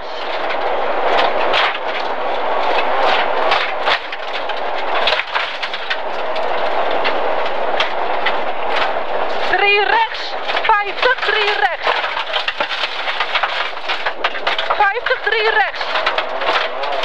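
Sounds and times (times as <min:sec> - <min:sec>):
knocks and jolts: 0:07.8 - 0:17.0.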